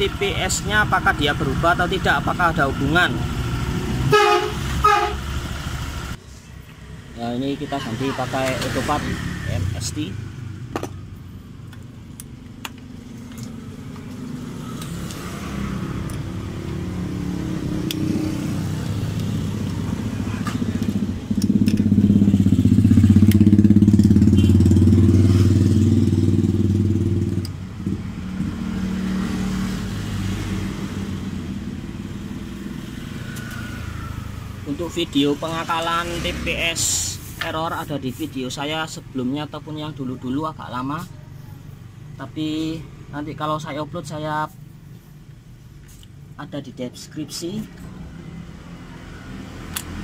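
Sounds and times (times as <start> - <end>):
scooter engine running: 16.8 - 28.4.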